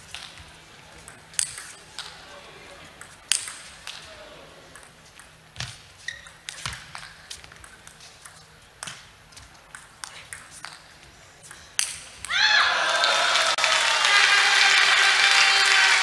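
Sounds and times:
crowd noise: 0:00.0 - 0:05.2, 0:12.4 - 0:16.0
table tennis ball clicking: 0:03.0 - 0:04.0.

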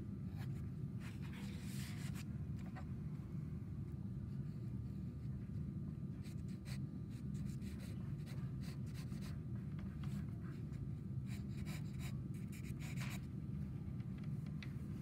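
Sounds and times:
steady low hum: 0:00.0 - 0:15.0
pencil scratching on paper: 0:11.3 - 0:13.2.

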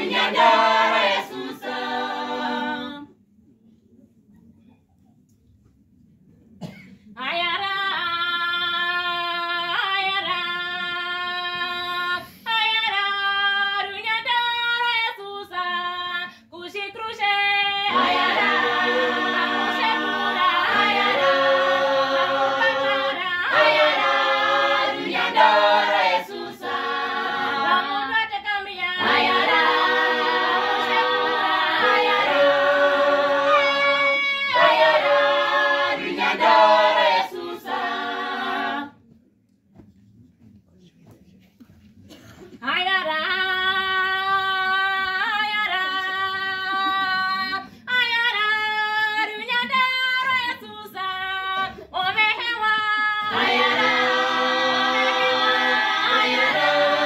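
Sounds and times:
choir singing a cappella: 0:00.0 - 0:03.2, 0:16.7 - 0:39.0, 0:48.3 - 0:57.0.

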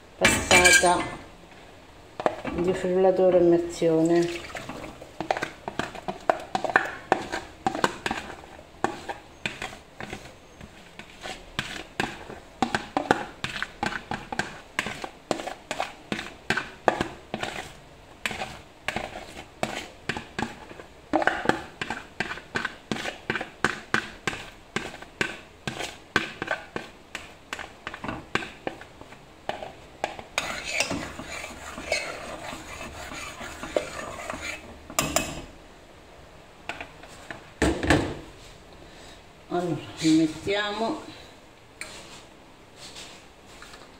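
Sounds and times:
spatula scraping plastic bowl: 0:04.3 - 0:28.1, 0:29.5 - 0:34.8.

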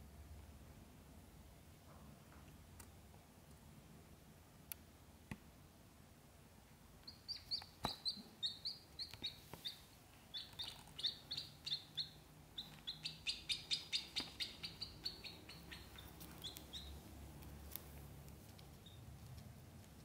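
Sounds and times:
ducklings peeping: 0:07.0 - 0:17.2, 0:18.7 - 0:19.1.

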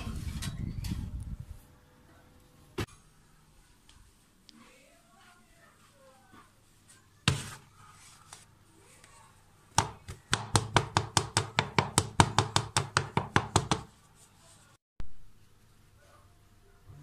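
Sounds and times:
hand patting cake pan: 0:09.7 - 0:14.0.

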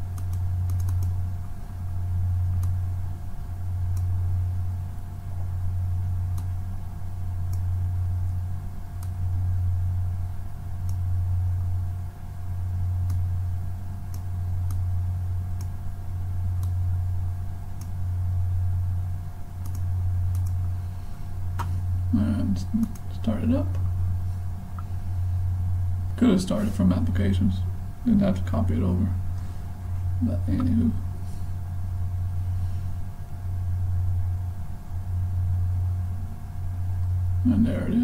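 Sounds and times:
low hum: 0:00.0 - 0:38.0
computer mouse clicks: 0:00.1 - 0:01.2, 0:02.6 - 0:02.8, 0:03.9 - 0:04.1, 0:06.3 - 0:06.5, 0:07.5 - 0:07.7, 0:09.0 - 0:09.2, 0:10.8 - 0:11.0, 0:13.0 - 0:13.2, 0:14.1 - 0:14.8, 0:16.6 - 0:16.8, 0:17.8 - 0:18.0, 0:19.6 - 0:20.6, 0:22.8 - 0:23.1.

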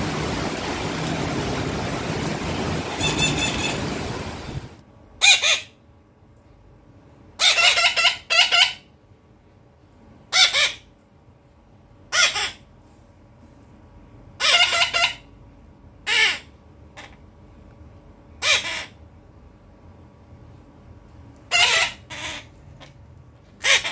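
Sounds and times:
parrot squawking: 0:02.8 - 0:04.6, 0:05.2 - 0:05.8, 0:07.4 - 0:08.9, 0:10.3 - 0:10.9, 0:12.1 - 0:12.6, 0:14.4 - 0:15.3, 0:16.0 - 0:17.2, 0:18.4 - 0:19.0, 0:21.5 - 0:22.6, 0:23.6 - 0:23.9.

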